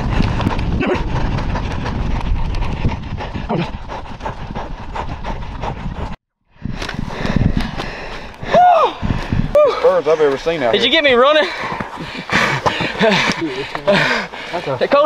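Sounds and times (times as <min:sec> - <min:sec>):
wind buffeting microphone: 0:00.0 - 0:14.4
running footfalls: 0:06.9 - 0:14.5.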